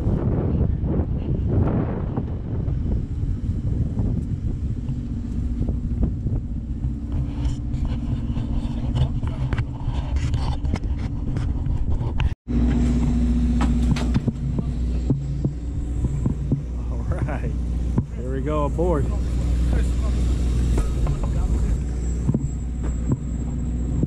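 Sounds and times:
boat engine idling: 2.3s - 9.9s, 12.5s - 24.0s.

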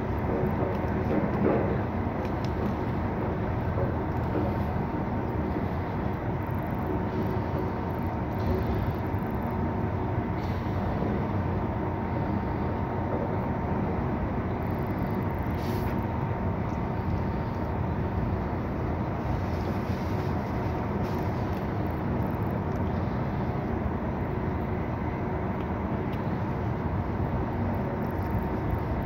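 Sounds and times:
faint hum: 0.0s - 29.0s
low rumbling noise: 0.0s - 29.0s.

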